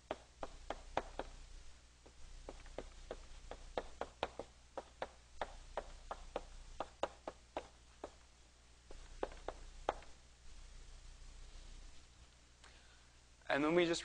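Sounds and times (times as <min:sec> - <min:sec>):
chalk tapping on blackboard: 0:00.0 - 0:01.4, 0:02.0 - 0:08.2, 0:08.9 - 0:10.2.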